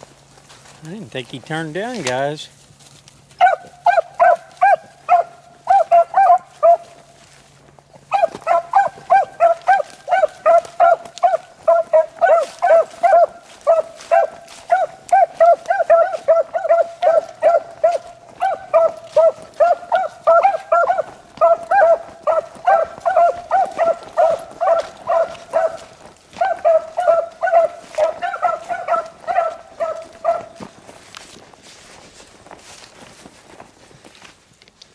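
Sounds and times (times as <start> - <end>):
beagles barking: 3.3 - 7.3, 7.9 - 31.0.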